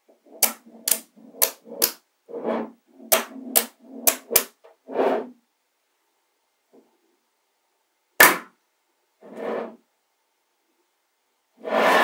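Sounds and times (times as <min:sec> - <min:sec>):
magnetic balls snapping together: 0:00.4 - 0:02.0, 0:03.1 - 0:04.6.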